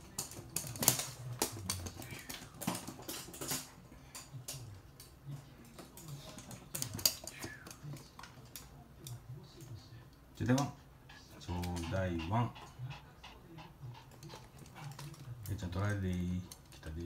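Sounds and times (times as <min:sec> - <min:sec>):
dog claws clicking on floor: 0:00.0 - 0:09.8, 0:14.1 - 0:17.0.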